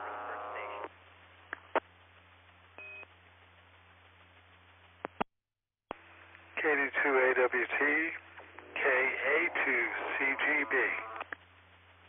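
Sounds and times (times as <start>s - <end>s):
radio clicks: 10.4s - 11.4s.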